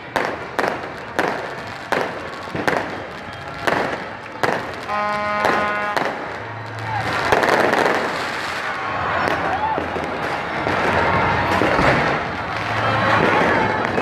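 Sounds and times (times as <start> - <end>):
crowd noise: 0.0 - 14.0
fireworks bursting: 0.0 - 14.0
horn-like note: 4.9 - 6.1.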